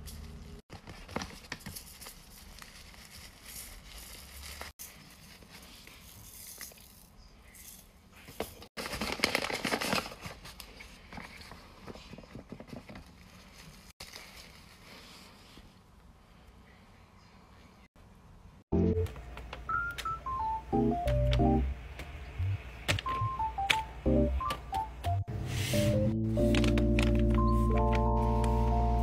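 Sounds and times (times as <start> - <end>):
hand rummaging in a paper bag: 0.0 - 6.5, 8.8 - 15.6, 25.8 - 28.5
paper wrapping rustling and crinkling: 0.0 - 6.9, 8.3 - 15.7, 26.3 - 28.6.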